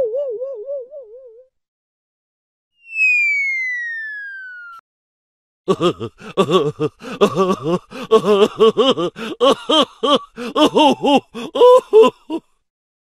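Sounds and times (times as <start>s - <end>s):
person gasping and groaning: 5.7s - 12.6s.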